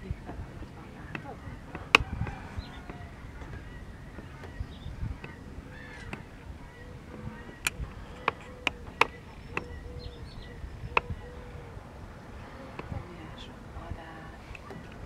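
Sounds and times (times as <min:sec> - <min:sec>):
distant birds calling: 0:00.0 - 0:15.0
low background rumble: 0:00.0 - 0:15.0
sharp clicks: 0:07.5 - 0:09.8.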